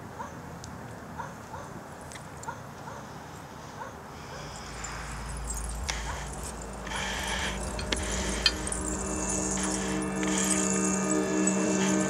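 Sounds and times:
low drone music: 4.2 - 12.0.

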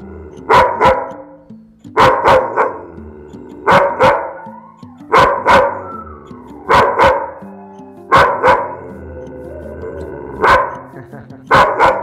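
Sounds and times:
low background music: 0.0 - 12.0
dog barking aggressively: 0.5 - 1.2, 2.0 - 2.8, 3.6 - 4.4, 5.1 - 5.8, 6.7 - 7.4, 8.1 - 8.8, 10.4 - 10.9, 11.5 - 12.0.

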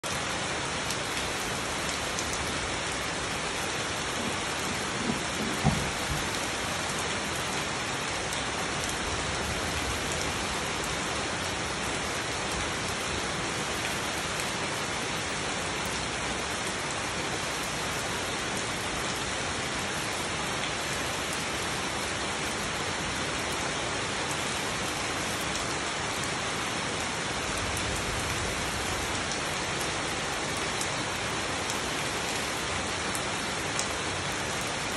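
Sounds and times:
rain falling on leaves: 0.0 - 34.9
short knocks: 5.0 - 6.3.

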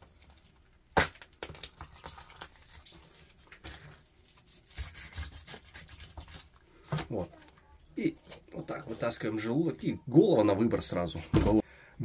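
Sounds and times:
wet rustles and clicks: 0.0 - 3.6.

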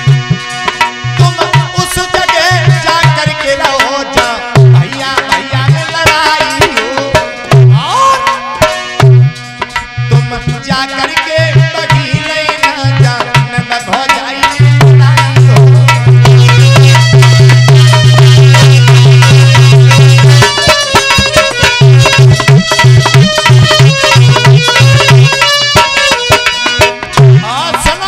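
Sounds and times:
man singing into a microphone: 0.0 - 28.0
sharp drum strikes: 0.0 - 28.0.

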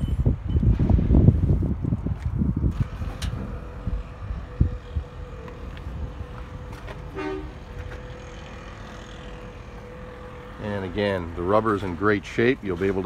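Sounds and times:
low rumbling outdoor noise: 0.0 - 13.0
short horn-like toot: 7.0 - 7.8.

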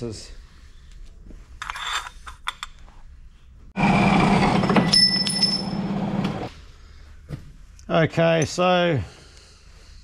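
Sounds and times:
high metallic blade ringing: 4.8 - 5.8.

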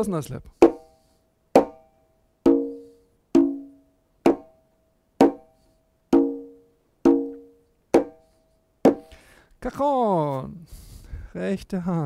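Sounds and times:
conga closed slaps: 0.6 - 0.9, 1.6 - 1.8, 2.5 - 2.8, 3.4 - 4.6, 5.2 - 5.5, 6.1 - 8.2, 8.8 - 9.0
conga open tones: 0.6 - 4.6, 5.2 - 8.2.

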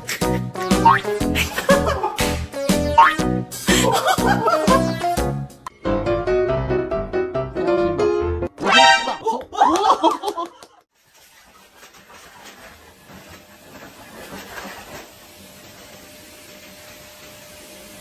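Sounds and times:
person laughing: 0.0 - 5.2, 9.0 - 10.8.

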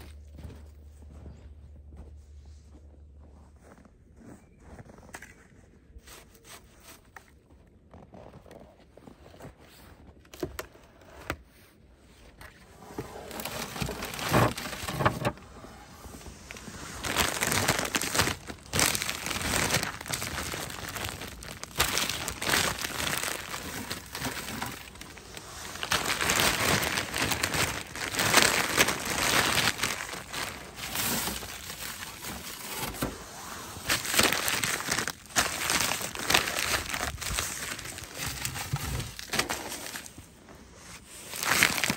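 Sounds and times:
plastic bags crinkling: 12.8 - 40.4, 41.1 - 41.9.

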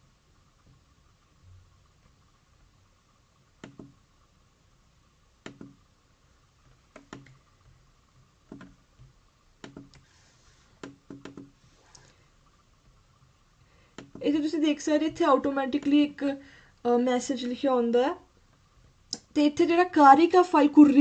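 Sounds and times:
computer mouse clicking: 3.6 - 4.0, 5.4 - 5.8, 6.9 - 7.4, 8.5 - 10.1, 10.8 - 12.1, 13.9 - 14.2.

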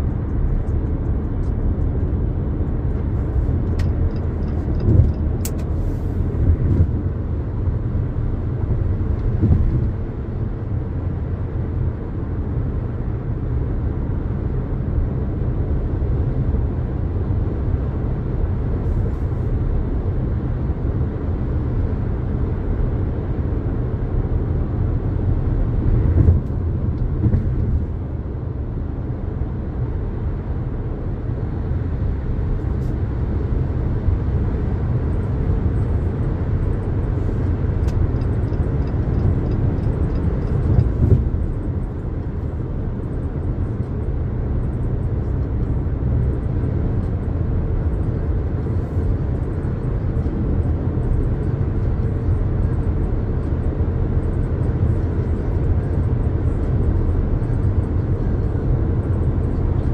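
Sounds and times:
car road and drivetrain rumble: 0.0 - 59.9
car bumps: 9.3 - 9.9.

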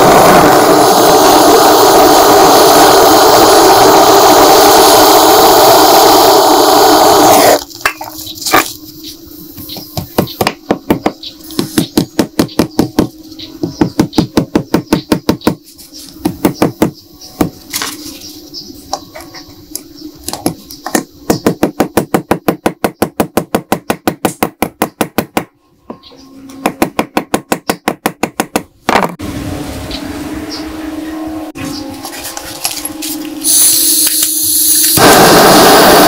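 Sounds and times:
steady noise: 0.0 - 10.2, 32.5 - 36.0.

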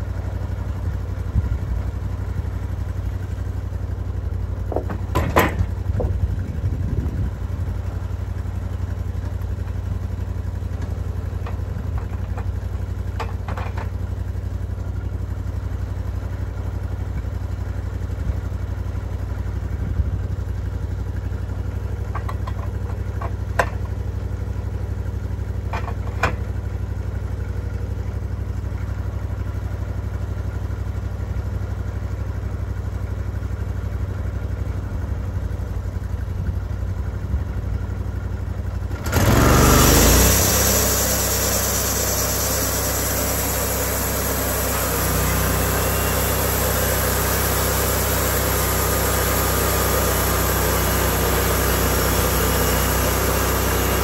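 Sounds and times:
sawmill engine idling: 0.0 - 54.0
boards knocking on steel: 4.7 - 5.7.

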